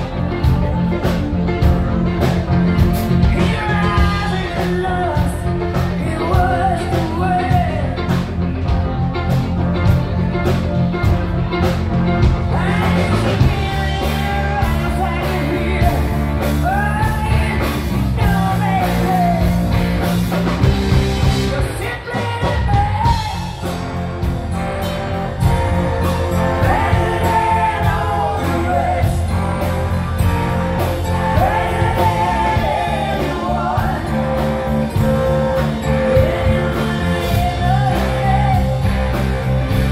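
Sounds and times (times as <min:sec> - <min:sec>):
live rock band playing: 0:00.0 - 0:39.9
woman singing lead: 0:03.1 - 0:08.7, 0:12.2 - 0:19.9, 0:20.6 - 0:23.9, 0:25.4 - 0:39.9.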